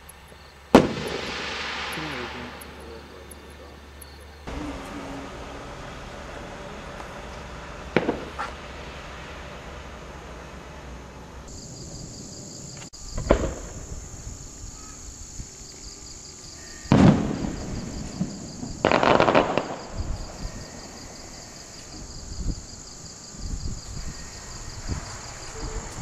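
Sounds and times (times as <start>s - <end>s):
crickets chirping: 0.0s - 26.0s
dull thump of firework launch: 0.7s - 2.8s, 7.0s - 8.8s, 13.2s - 14.0s, 16.9s - 20.3s
loud firework bang: 0.7s - 3.6s, 4.4s - 12.2s, 13.1s - 14.4s, 16.8s - 22.7s, 23.6s - 26.0s
rattle of firework pops: 0.7s - 4.2s, 7.0s - 9.4s, 12.7s - 14.2s, 16.9s - 21.0s.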